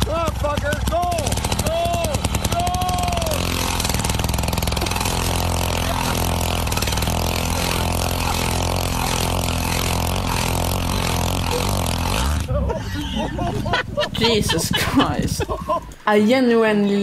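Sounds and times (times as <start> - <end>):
auger bit drilling into ice: 0.0 - 12.5
ice auger engine running: 0.0 - 13.6.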